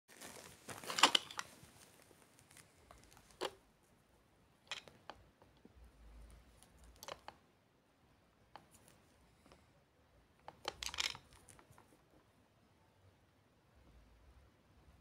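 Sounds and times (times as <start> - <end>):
faint handling clicks and taps: 8.5 - 9.6.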